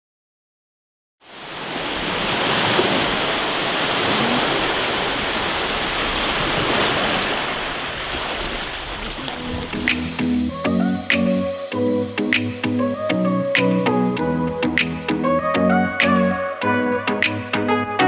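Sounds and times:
ocean waves breaking on beach: 1.2 - 10.6.

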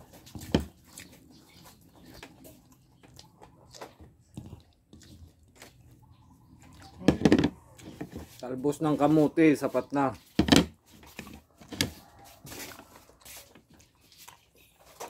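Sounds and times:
person chewing food: 0.0 - 8.5, 10.2 - 15.0.

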